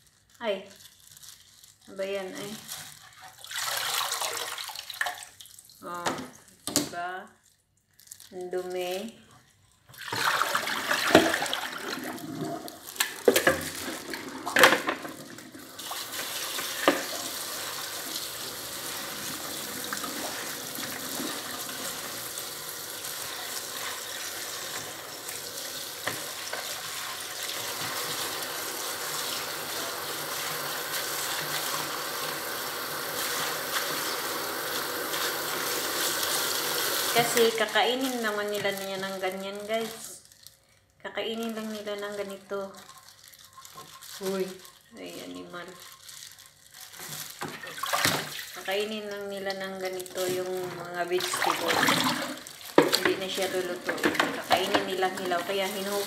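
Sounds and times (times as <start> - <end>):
tap water splashing on leaves: 47.2 - 48.8, 49.9 - 56.0
plastic bowls knocking: 52.8 - 55.8.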